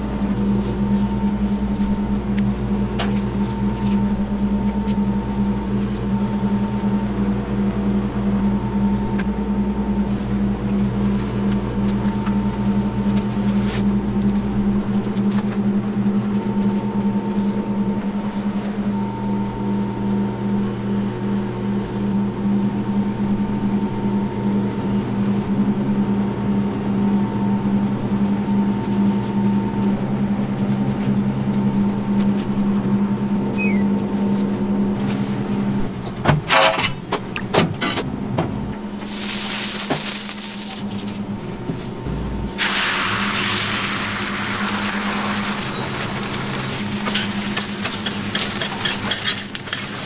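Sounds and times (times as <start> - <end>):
kitchen equipment hum: 0.0 - 50.0
egg sizzling on griddle: 42.6 - 50.0.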